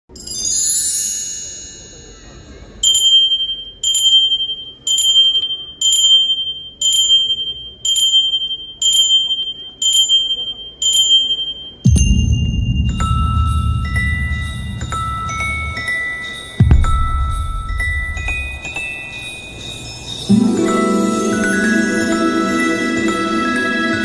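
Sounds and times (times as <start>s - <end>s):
shimmering high chimes: 0.1s - 3.0s, 11.4s - 24.0s
music with deep bass: 11.9s - 16.0s, 16.6s - 18.8s
high bell struck: 11.9s - 23.4s.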